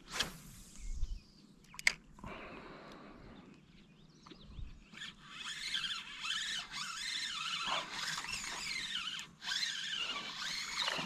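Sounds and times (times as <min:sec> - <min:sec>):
fishing reel whirring: 0:04.8 - 0:11.0.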